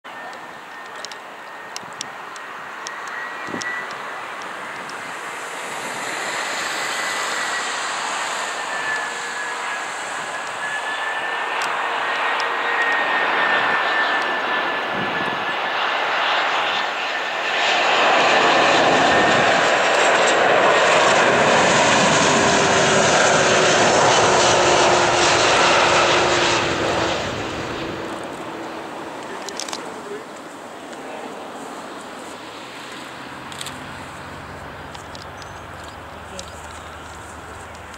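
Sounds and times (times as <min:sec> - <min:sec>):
jet engines rushing and whining: 0:00.1 - 0:37.9.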